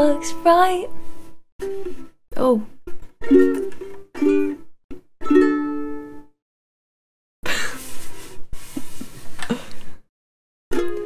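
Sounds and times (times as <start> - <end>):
ukulele strummed chords: 0.0 - 2.1, 2.9 - 6.3, 10.7 - 11.0.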